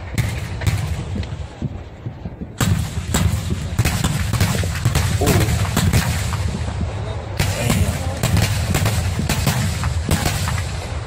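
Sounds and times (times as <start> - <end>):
low rumble: 0.0 - 9.4
rapid sharp cracks of gunfire: 2.6 - 11.0.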